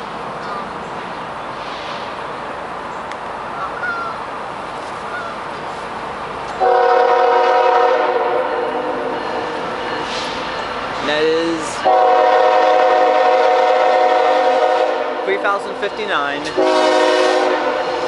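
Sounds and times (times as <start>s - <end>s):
train air horn chord: 6.6s - 8.9s, 11.8s - 15.2s, 16.5s - 18.0s.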